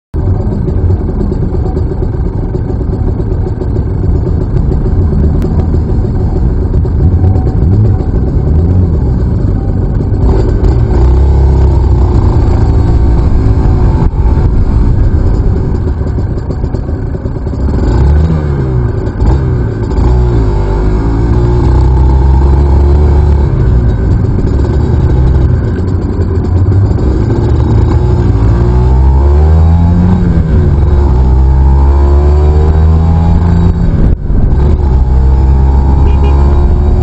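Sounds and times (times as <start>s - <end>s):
motorcycle engine revving: 0.2s - 37.0s.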